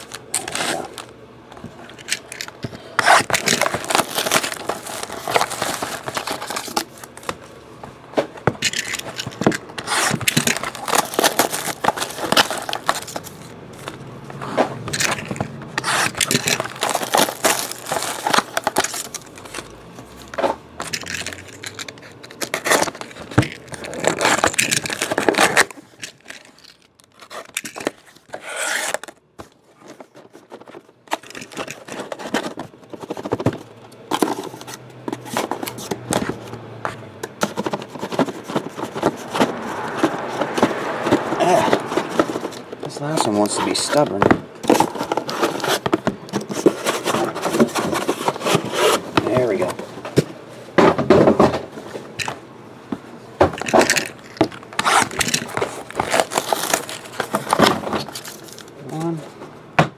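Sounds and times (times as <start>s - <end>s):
cardboard boxes scraping: 0.0s - 1.1s, 9.0s - 25.7s, 27.2s - 50.2s, 54.4s - 59.0s
foil packs crinkling: 0.0s - 1.2s, 1.9s - 7.5s, 8.5s - 14.0s, 14.9s - 36.0s, 53.6s - 59.2s.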